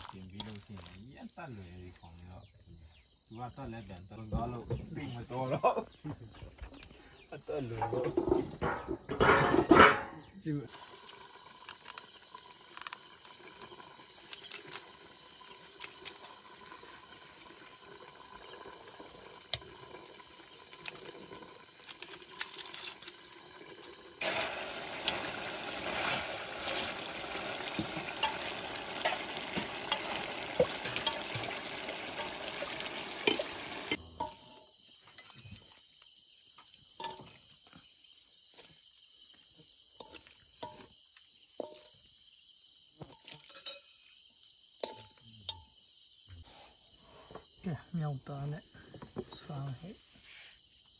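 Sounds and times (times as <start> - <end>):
meat sizzling in a wok: 10.7 - 34.0
faint hiss: 15.5 - 34.2, 46.2 - 50.9.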